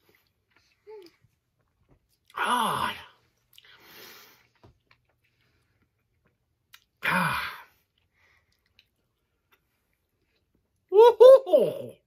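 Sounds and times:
man chewing candy: 3.4 - 7.0, 7.8 - 10.9.

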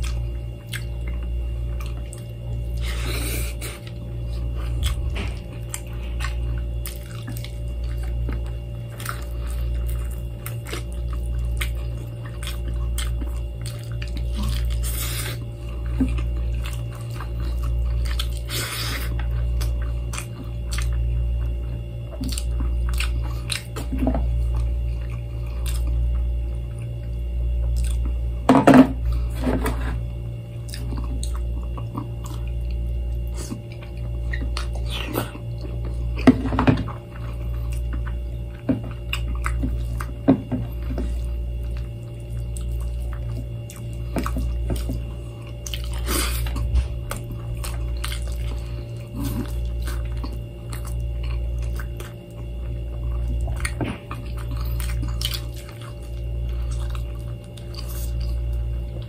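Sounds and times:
chewing and wet squishing: 0.0 - 59.0
low hum: 0.0 - 59.0.

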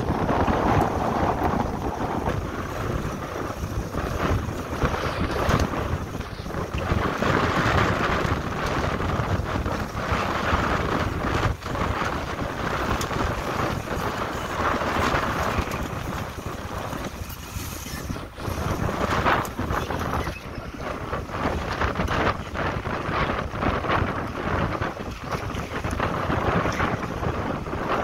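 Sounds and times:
water rushing along hull: 0.0 - 28.0
wind buffeting microphone: 0.0 - 28.0.

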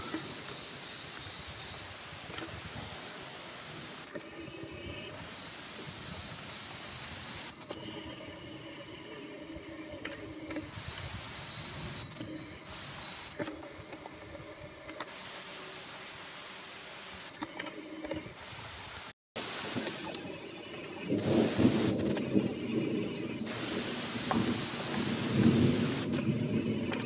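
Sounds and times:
insects buzzing: 4.0 - 27.0.

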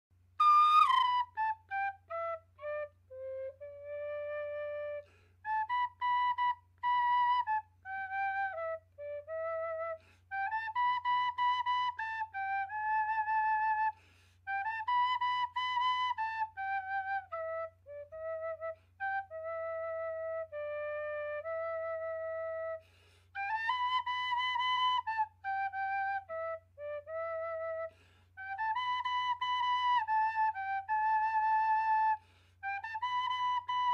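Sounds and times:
end-blown flute melody: 0.4 - 22.8
player breathing: 22.8 - 23.4.

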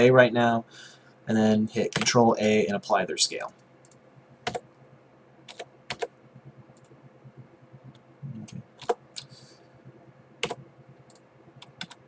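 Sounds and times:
faint steady hum: 0.0 - 12.0
keyboard and mouse clicks: 5.5 - 6.1, 6.8 - 7.0, 7.8 - 9.3, 10.4 - 12.0.

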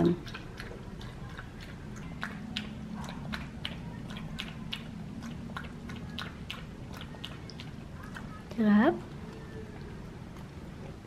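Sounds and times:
dog lapping water from metal bowl: 0.0 - 8.4.

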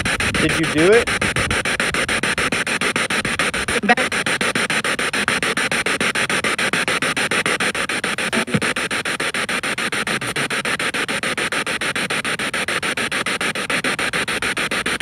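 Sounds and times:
radio static bursts: 0.0 - 1.2, 3.7 - 9.3
voice-like fragment: 8.3 - 8.7.

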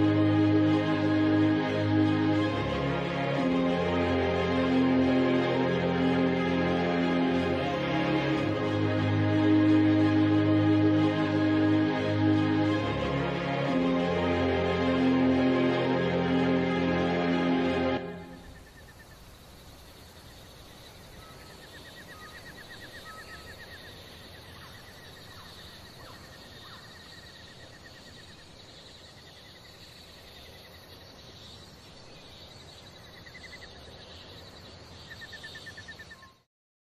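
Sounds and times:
high insect hiss: 18.2 - 36.2.

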